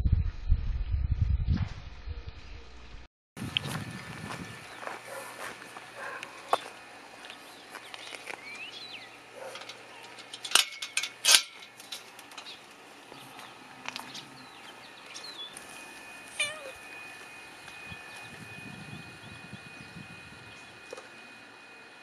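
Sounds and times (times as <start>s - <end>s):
cat meowing: 16.4s - 16.8s.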